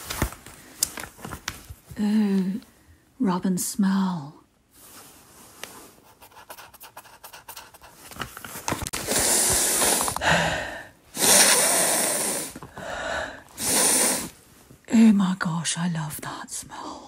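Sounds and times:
finger rubbing paper: 5.9s - 8.1s
loud sniffs: 9.0s - 10.5s, 11.1s - 12.6s, 13.5s - 14.4s.

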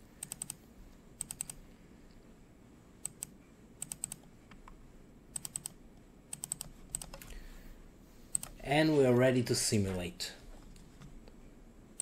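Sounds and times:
typing on computer keyboard: 0.2s - 0.6s, 1.2s - 1.6s, 3.0s - 4.3s, 5.3s - 7.4s, 8.3s - 8.6s.

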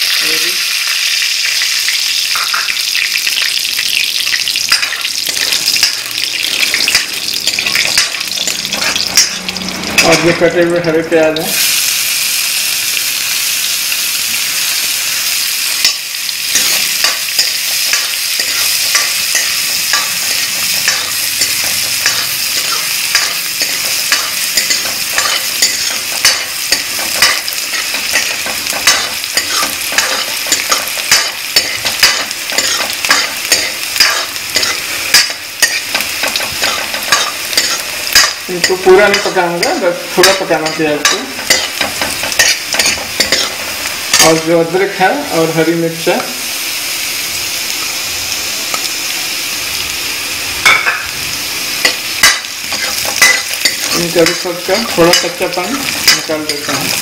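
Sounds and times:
onions sizzling in hot oil: 0.0s - 57.0s
metal ladle scraping a pan: 4.7s - 10.4s, 15.7s - 44.3s.

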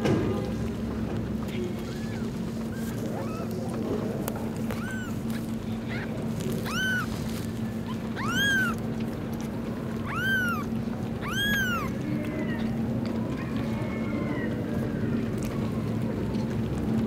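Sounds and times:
steady low hum: 0.6s - 13.2s
kitten mewing: 1.6s - 12.6s.

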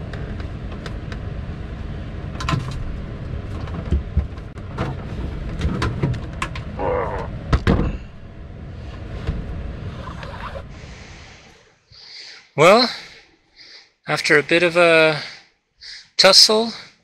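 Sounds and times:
steady low rumble: 0.0s - 15.0s
man groaning with effort: 6.8s - 7.4s.

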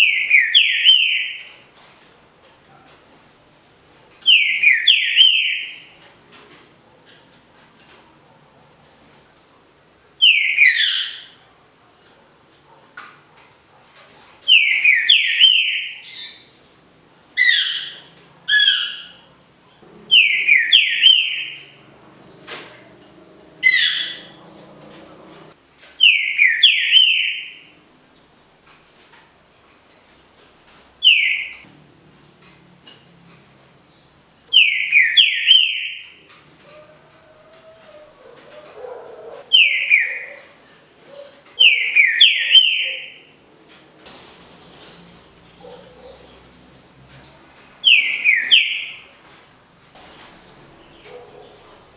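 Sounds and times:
bird singing whistled phrases: 20.1s - 21.6s.

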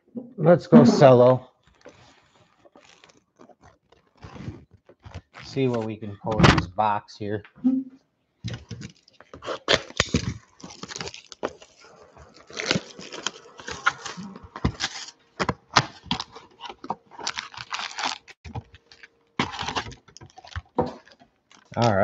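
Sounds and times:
foil packs rustling: 1.6s - 6.0s, 8.5s - 22.0s
plastic wrap crackling: 1.6s - 6.0s, 8.5s - 22.0s
cardboard tearing: 1.8s - 5.9s, 8.7s - 22.0s.

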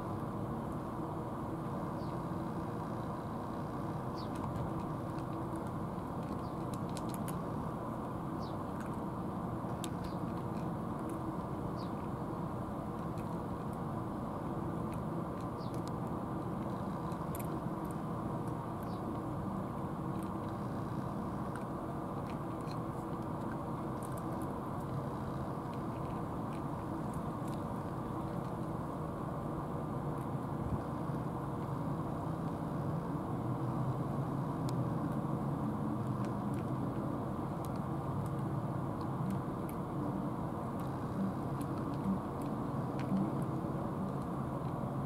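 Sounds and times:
low background rumble: 0.0s - 45.0s
bird chirp: 1.9s - 2.2s, 4.0s - 4.4s, 8.3s - 8.7s, 11.7s - 12.0s, 15.5s - 15.8s, 18.8s - 19.2s
cats eating from plastic trays: 2.3s - 45.0s.

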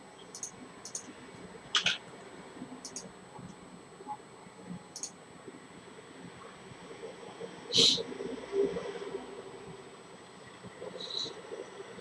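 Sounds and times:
faint room hum: 0.0s - 12.0s
mouse and keyboard clicks: 0.4s - 1.1s.

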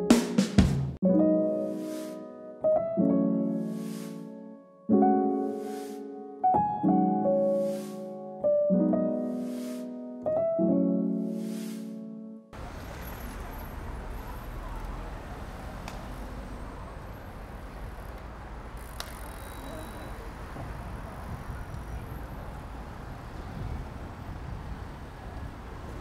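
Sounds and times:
traffic hum: 12.6s - 26.0s.

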